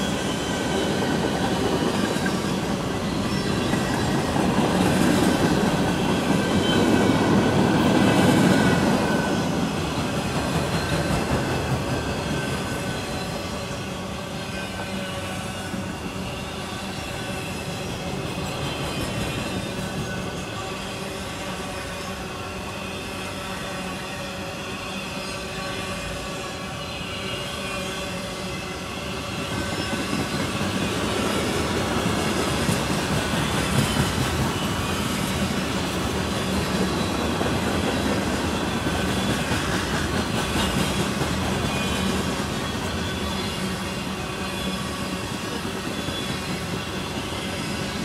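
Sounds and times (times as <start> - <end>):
freight train wheels rumbling: 0.0 - 48.0.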